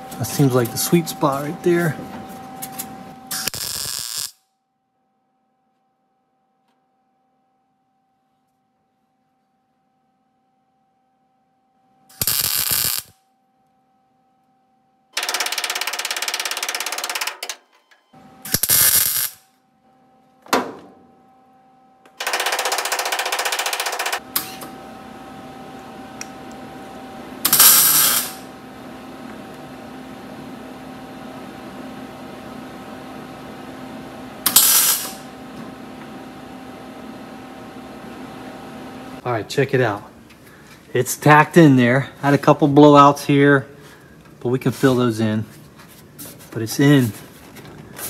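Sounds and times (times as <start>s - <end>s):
welder crackling and sputtering: 3.3s - 4.4s, 12.1s - 13.2s, 18.4s - 19.4s, 27.4s - 28.5s, 34.4s - 35.3s.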